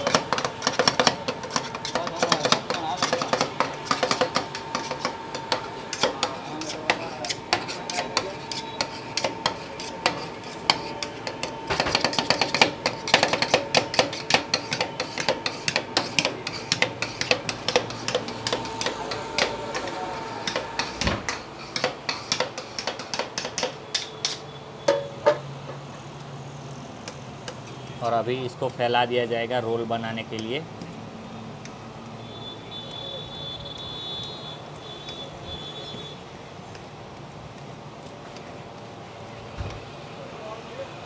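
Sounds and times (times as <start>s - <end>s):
metal spatulas chopping on steel plate: 0.0s - 25.2s.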